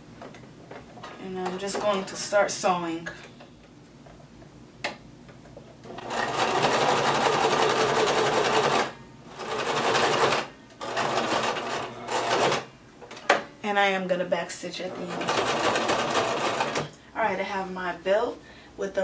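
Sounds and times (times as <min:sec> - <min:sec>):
sewing machine stitching: 0:05.9 - 0:12.7, 0:15.0 - 0:16.9.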